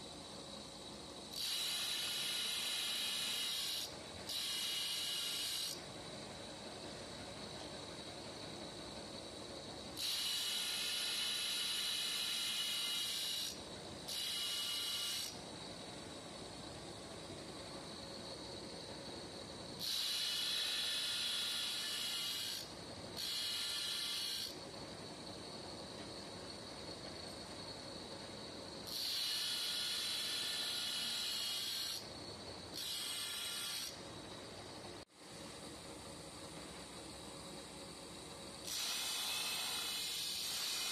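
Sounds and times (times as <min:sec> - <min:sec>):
grinder cutting steel: 0:19.8 - 0:24.5, 0:28.9 - 0:32.0, 0:32.8 - 0:34.0, 0:38.7 - 0:40.9.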